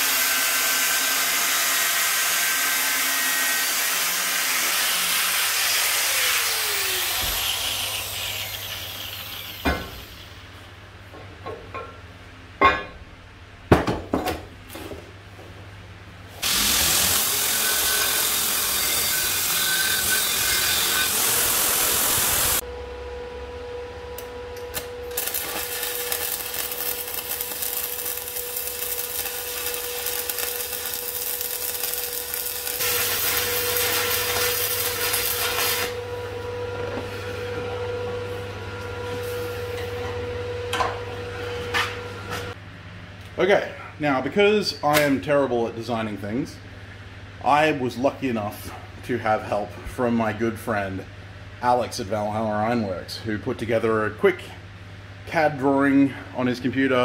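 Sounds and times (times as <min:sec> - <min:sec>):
welder crackling: 0:16.4 - 0:22.6, 0:24.2 - 0:36.0
metalwork hiss: 0:25.1 - 0:36.0.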